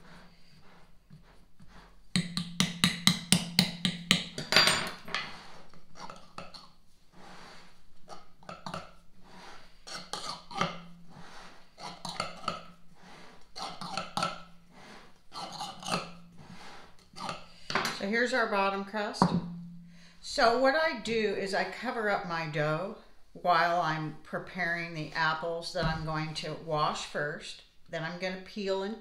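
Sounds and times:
knife scraping dough: 0.0s - 3.1s, 5.2s - 18.1s.

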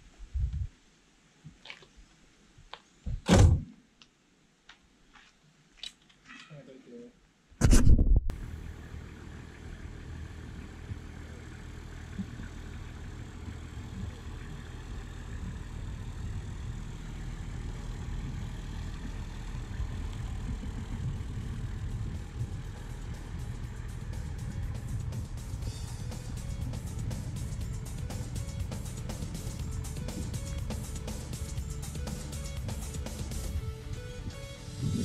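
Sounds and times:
bus engine rumble driving past: 8.3s - 35.0s.

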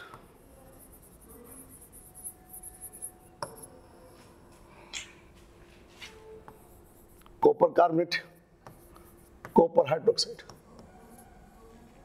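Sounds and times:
writing scratching on board: 0.0s - 3.7s, 8.4s - 11.9s.

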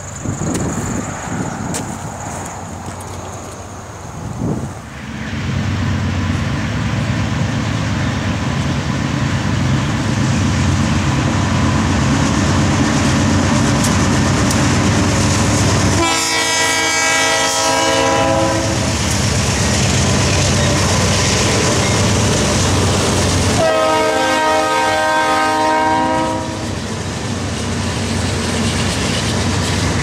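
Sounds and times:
diesel locomotives rumbling by: 0.0s - 30.0s
locomotive air horn blast: 15.9s - 19.0s, 23.6s - 26.8s.

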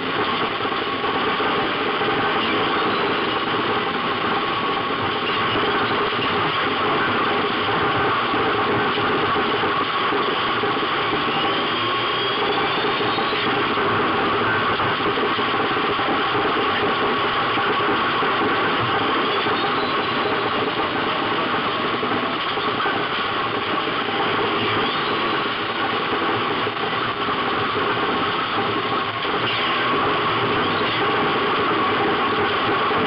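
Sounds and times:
car engine running hard: 0.0s - 33.0s.

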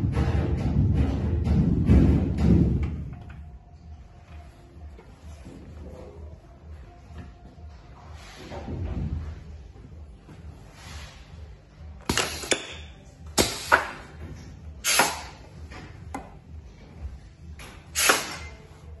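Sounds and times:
pneumatic hiss: 12.1s - 14.2s, 14.8s - 15.4s, 17.9s - 18.6s.

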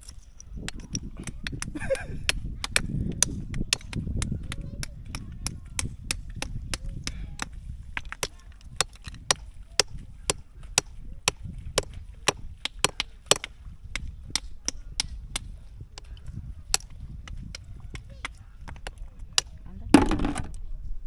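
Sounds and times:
blade knocking on shell: 0.7s - 16.1s.

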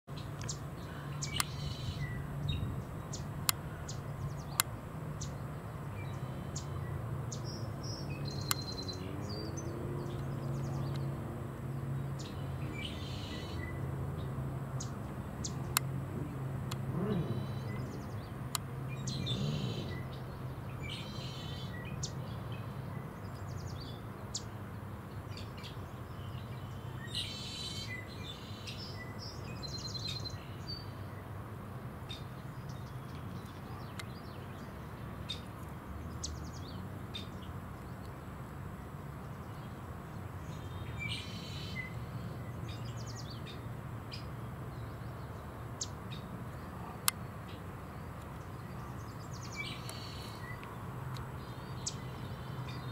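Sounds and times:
small birds chirping and trilling: 0.1s - 31.4s, 32.0s - 52.9s.

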